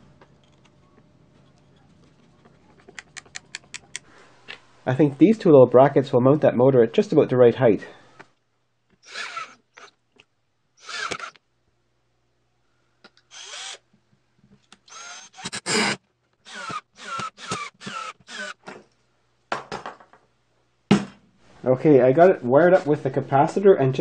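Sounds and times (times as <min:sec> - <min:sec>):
cordless drill driving screws: 0:09.0 - 0:09.9, 0:10.8 - 0:11.4, 0:13.3 - 0:13.8, 0:14.9 - 0:18.7.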